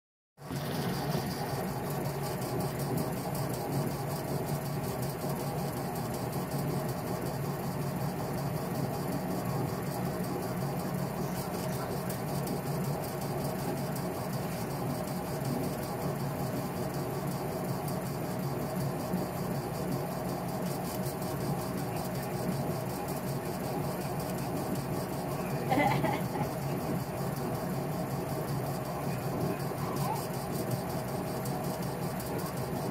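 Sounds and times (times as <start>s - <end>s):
laser engraver fans whirring: 0.4s - 32.9s.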